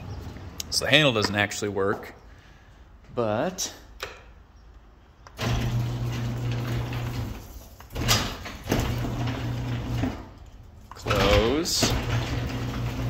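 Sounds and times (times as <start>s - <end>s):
garage door opener motor hum: 5.4s - 13.0s
garage door rattling: 5.4s - 13.0s.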